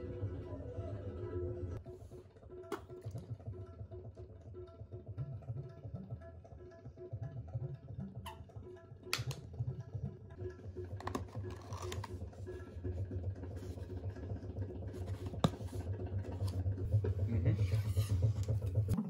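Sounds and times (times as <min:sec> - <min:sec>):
faint music: 0:00.0 - 0:19.0
low steady hum: 0:00.0 - 0:19.0
box lid clicking open: 0:09.1 - 0:09.4, 0:11.0 - 0:12.1.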